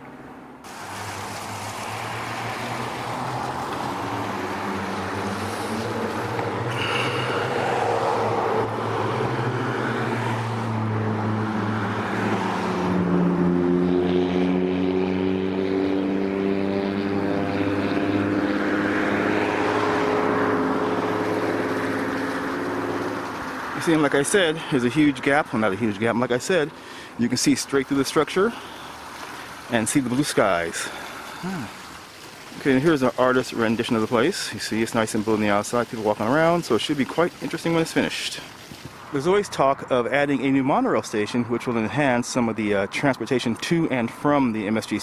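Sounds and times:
engine humming: 0.0 - 39.2
broad rushing noise: 0.6 - 10.9, 16.2 - 40.8.

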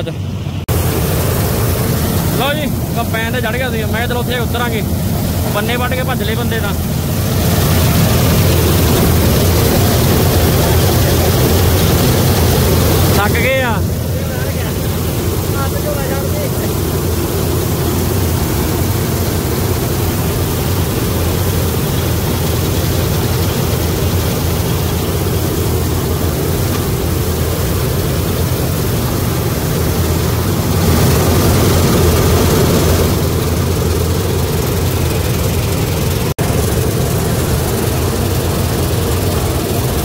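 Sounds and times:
combine harvester drone: 0.0 - 40.0.

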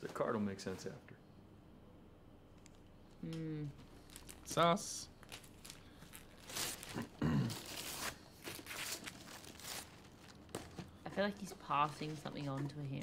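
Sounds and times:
low voiced hum: 3.1 - 4.0
wrapping paper tearing and crumpling: 4.0 - 11.0.

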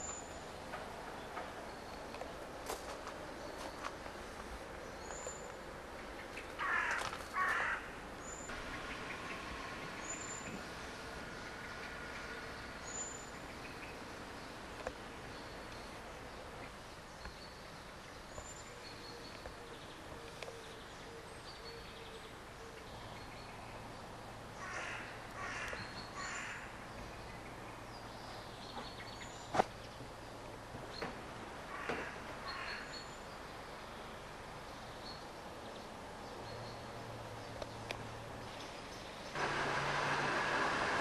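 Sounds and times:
loud bird calls: 24.6 - 27.6, 31.7 - 33.3.

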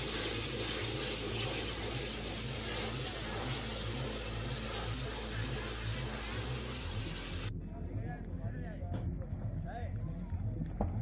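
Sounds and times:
steady rushing noise: 0.0 - 7.6.

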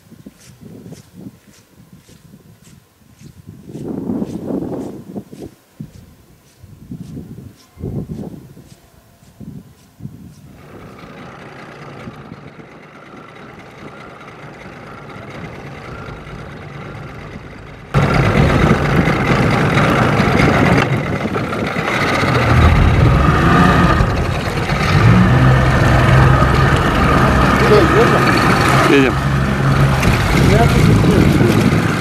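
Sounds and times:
faint engine hum: 0.0 - 32.0
outboard motor running: 10.6 - 32.0.

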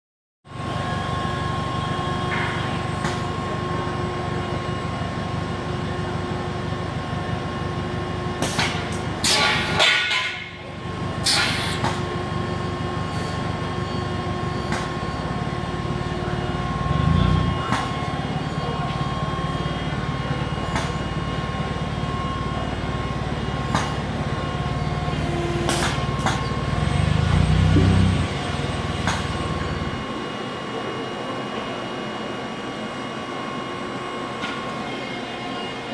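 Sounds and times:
constant machine whine: 0.5 - 35.9
low machine hum: 12.0 - 35.9.

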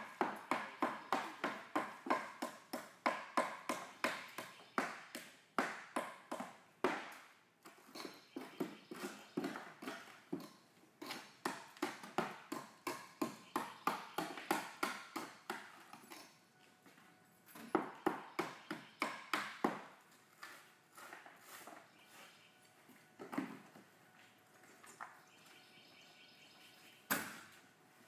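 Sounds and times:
hammer tapping on wood: 17.8 - 19.9.

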